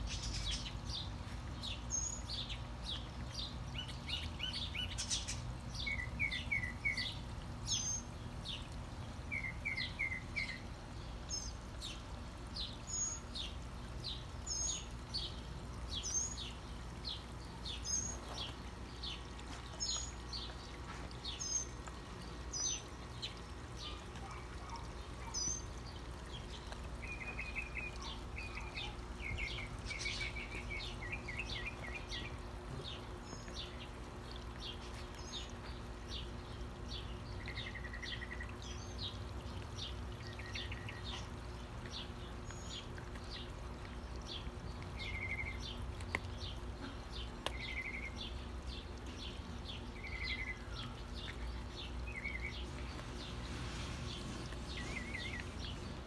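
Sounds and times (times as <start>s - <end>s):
fountain pouring into basin: 0.0s - 56.0s
small birds chirping and trilling: 0.0s - 56.0s.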